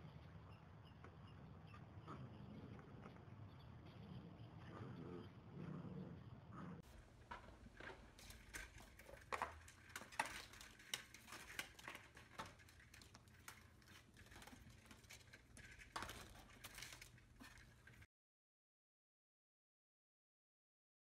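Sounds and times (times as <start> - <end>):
window blind slats clattering: 6.8 - 18.1.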